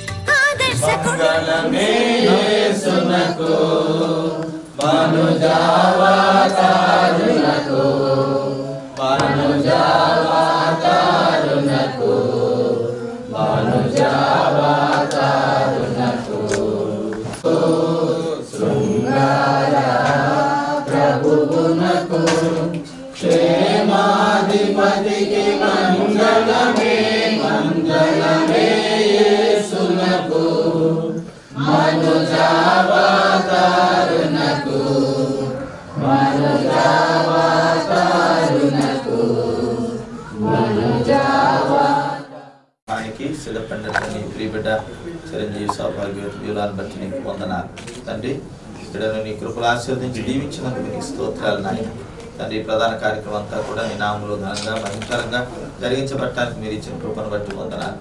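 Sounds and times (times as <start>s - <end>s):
voices chanting in prayer: 0.8s - 47.2s.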